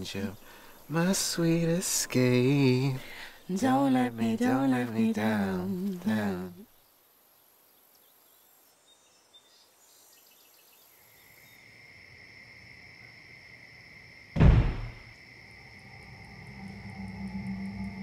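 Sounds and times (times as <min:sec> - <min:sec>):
insects chirping: 0:00.0 - 0:18.0
low boom impact: 0:14.4 - 0:15.0
low ominous rumble: 0:15.6 - 0:18.0.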